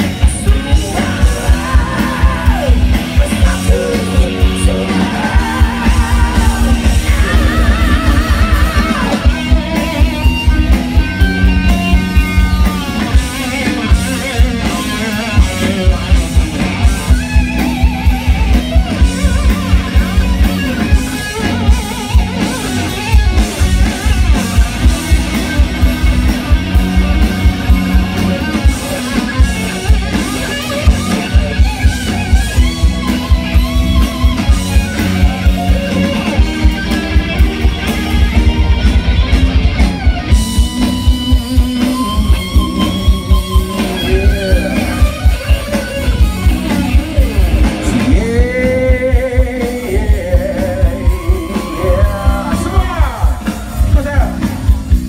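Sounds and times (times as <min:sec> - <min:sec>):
drum kit beat: 0:00.0 - 0:55.0
electric guitar: 0:00.0 - 0:55.0.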